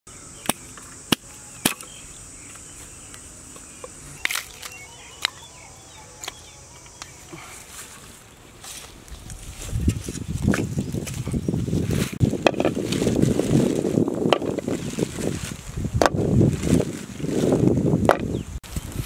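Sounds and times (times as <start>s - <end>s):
firewood sticks knocking: 12.3s - 12.8s.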